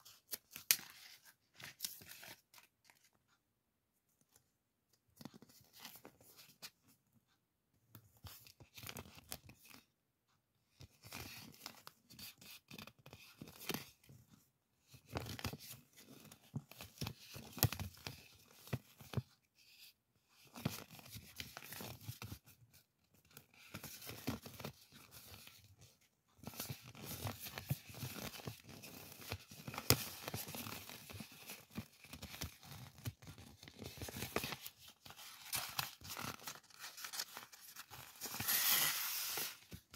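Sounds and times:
paper rustling and crinkling: 20.4s - 39.9s.

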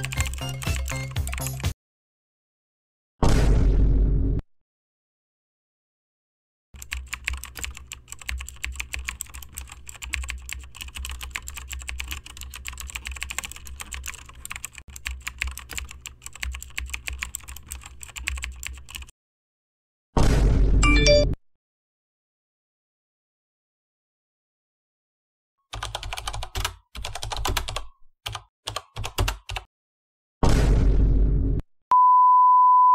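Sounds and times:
rapid keyboard typing: 0.0s - 1.8s, 6.8s - 19.1s, 25.7s - 29.7s.

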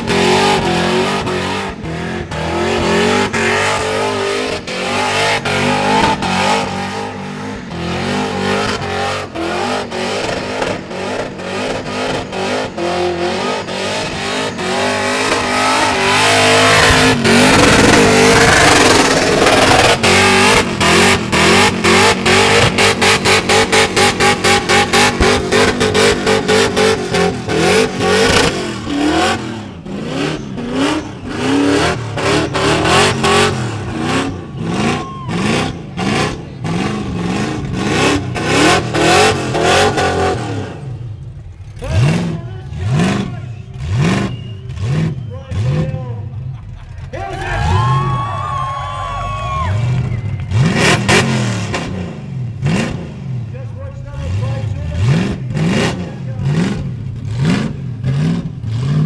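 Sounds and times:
car engine revving high: 0.0s - 46.4s, 49.3s - 59.0s.

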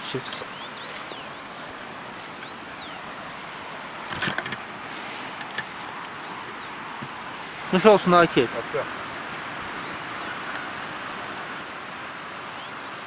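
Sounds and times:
steady outdoor rushing hiss: 0.0s - 13.0s.

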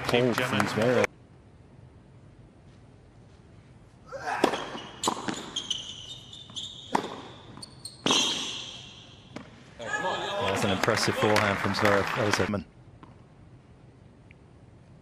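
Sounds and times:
racket striking tennis ball: 4.4s - 5.6s, 6.9s - 8.7s
tennis ball bouncing: 4.4s - 5.8s, 6.4s - 8.6s, 9.3s - 9.6s
sneakers squeaking on court: 4.4s - 9.5s.

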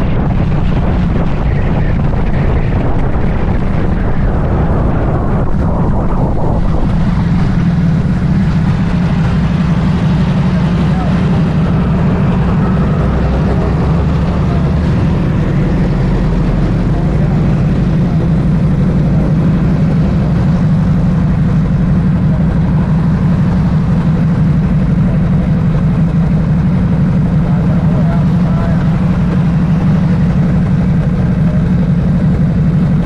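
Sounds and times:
motorcycle engine idling: 0.0s - 33.0s.

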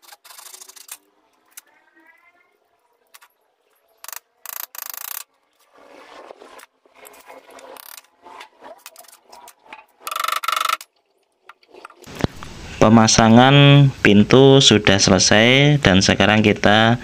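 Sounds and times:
screwdriver scraping and grinding: 0.0s - 1.6s, 4.0s - 10.8s.

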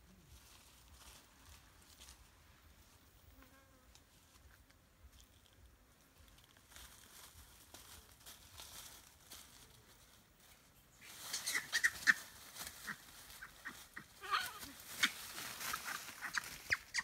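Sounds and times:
dry leaves crackling underfoot: 0.0s - 17.0s
macaques chirping and honking: 11.3s - 17.0s.

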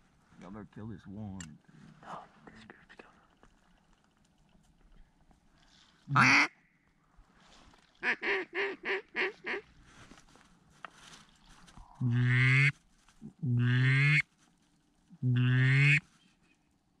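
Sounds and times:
duck quacking: 6.1s - 6.5s, 8.0s - 9.7s, 12.0s - 12.7s, 13.5s - 14.2s, 15.3s - 16.0s.

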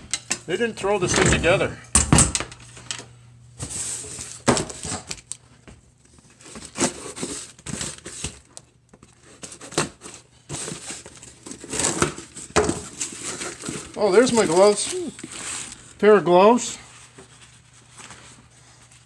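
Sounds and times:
cardboard rustling and crinkling: 6.0s - 19.0s.

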